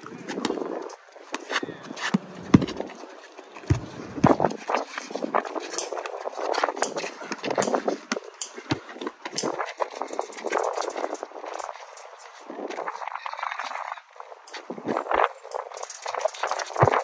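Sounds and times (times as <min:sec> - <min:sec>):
sneakers scuffing: 0:00.2 - 0:05.8
basketball bouncing on concrete: 0:02.0 - 0:03.0, 0:03.6 - 0:04.6, 0:07.3 - 0:09.4.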